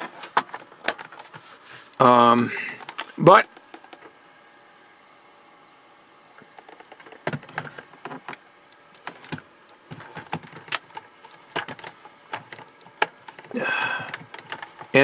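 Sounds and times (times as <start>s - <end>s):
plastic case clicks and knocks: 6.6s - 8.4s, 9.0s - 13.5s.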